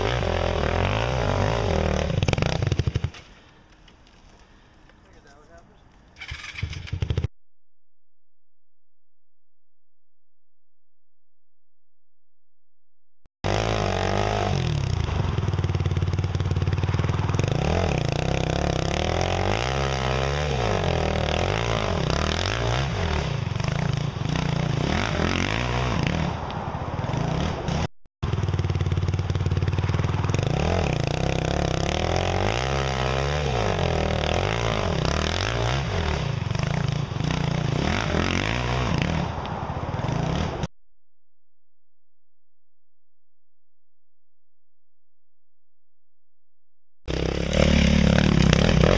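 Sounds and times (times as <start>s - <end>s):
motorcycle engine revving: 0.0s - 3.4s, 6.2s - 7.3s, 13.4s - 40.7s, 47.1s - 48.9s.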